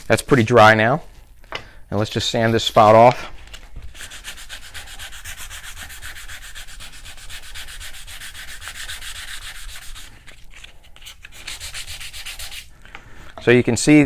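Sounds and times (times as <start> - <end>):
sandpaper rubbing on wood: 3.9 - 10.3, 11.2 - 12.7.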